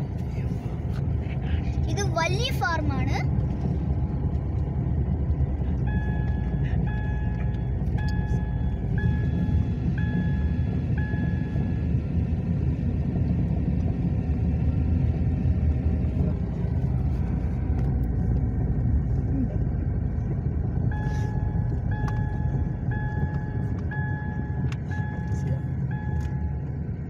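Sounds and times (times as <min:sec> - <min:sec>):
car cabin rumble: 0:00.0 - 0:27.0.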